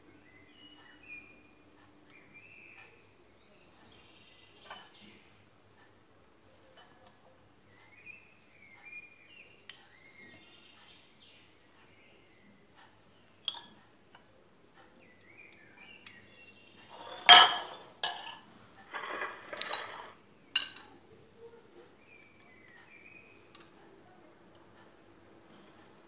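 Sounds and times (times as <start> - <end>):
tins scraping on stone: 16.9 - 18.3, 18.9 - 20.2
plate and metal tins clinking: 16.9 - 20.9.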